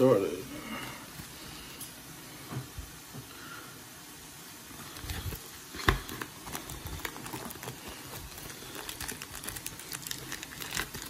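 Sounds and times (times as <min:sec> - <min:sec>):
foil wrapper crinkling: 0:04.9 - 0:11.0.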